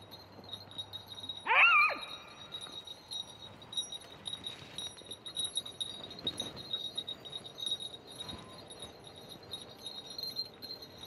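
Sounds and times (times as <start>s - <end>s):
high tinkling: 0.0s - 11.0s
dog yelp: 1.5s - 2.2s.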